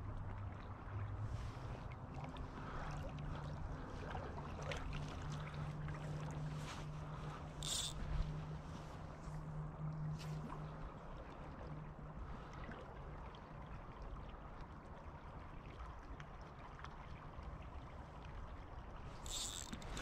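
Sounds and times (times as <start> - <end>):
river water flowing: 0.0 - 20.0
faint ticks: 6.7 - 8.4, 19.2 - 20.0.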